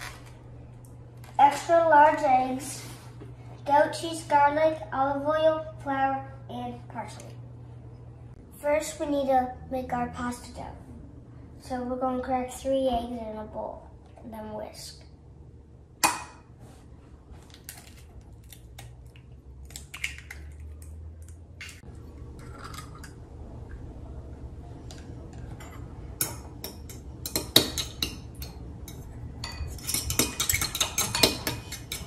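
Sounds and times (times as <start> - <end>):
eggs cracked against a bowl: 17.6 - 21.8
fork whisking eggs in a bowl: 26.2 - 32.0.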